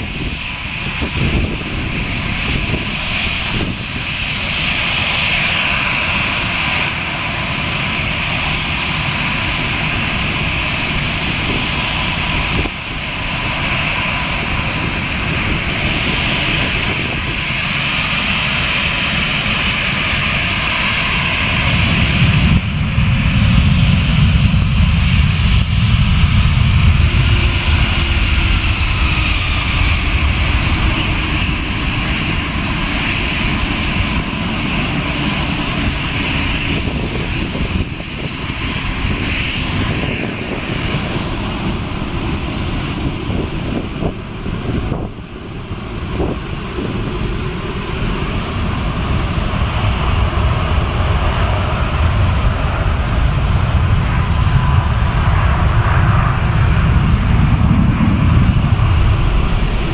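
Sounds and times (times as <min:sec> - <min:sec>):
jet engines whining: 0:00.0 - 0:59.9
deep rumble: 0:49.2 - 0:59.9.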